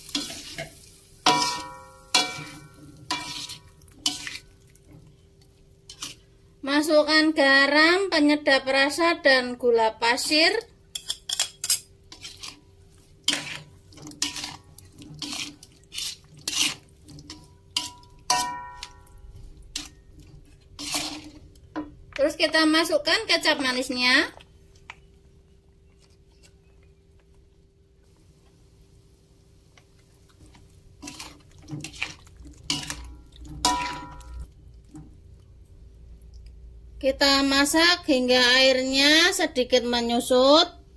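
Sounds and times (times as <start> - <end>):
metal spatula scraping a wok: 0.0 - 5.0, 5.8 - 6.3, 11.0 - 21.5, 31.0 - 34.4.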